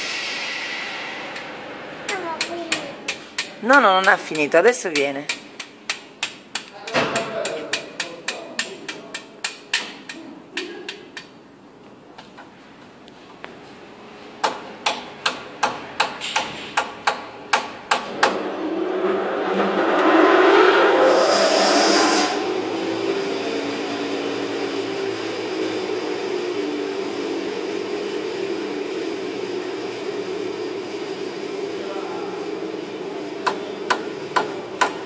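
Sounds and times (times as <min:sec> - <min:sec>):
engine-like rushing drone: 0:00.0 - 0:03.7, 0:18.0 - 0:34.8.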